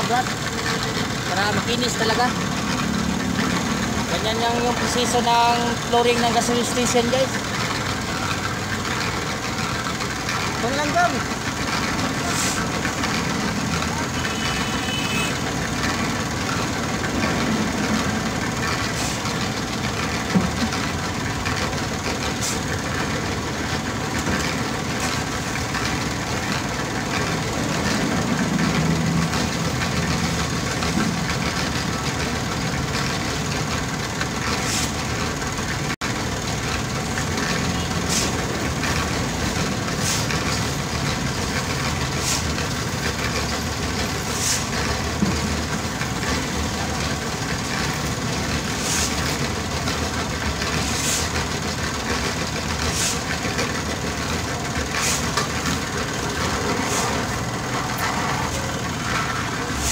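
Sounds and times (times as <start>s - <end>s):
engine running steadily: 0.0s - 59.9s.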